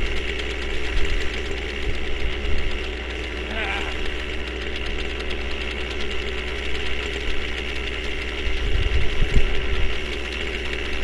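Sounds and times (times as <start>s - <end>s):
model helicopter engine idling: 0.0s - 11.0s.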